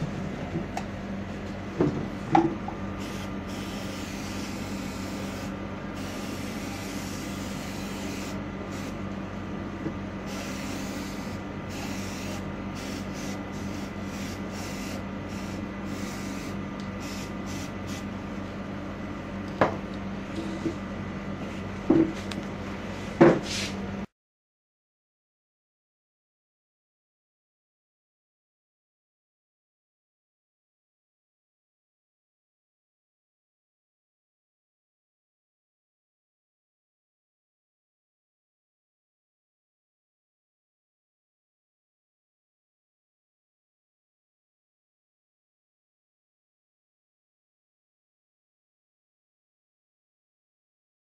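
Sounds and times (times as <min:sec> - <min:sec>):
steady low hum: 0:00.0 - 0:24.1.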